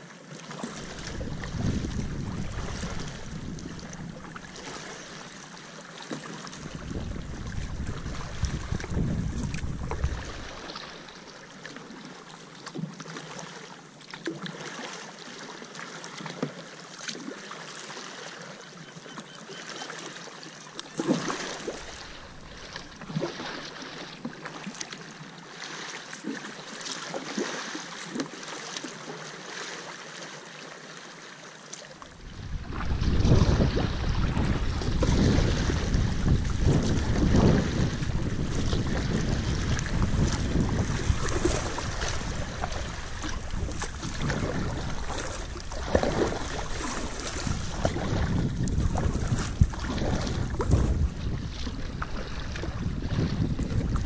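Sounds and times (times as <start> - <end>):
paddle splashing in water: 0.0 - 54.0
water lapping against hull: 0.0 - 54.0
wind buffeting microphone: 0.8 - 4.8, 6.6 - 10.7, 32.2 - 54.0.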